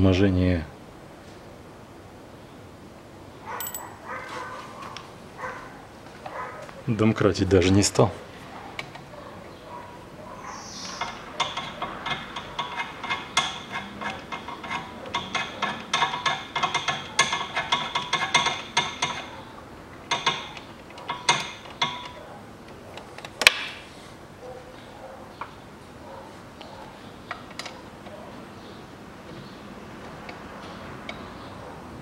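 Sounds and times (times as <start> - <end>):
ratchet wrench clicking: 11.0 - 19.4.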